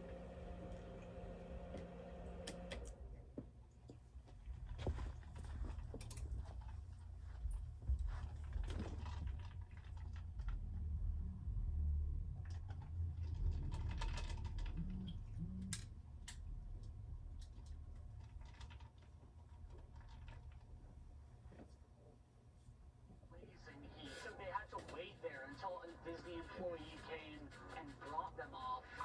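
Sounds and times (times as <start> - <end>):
low steady hum: 0.0 - 29.0
quiet rustling: 3.3 - 10.6.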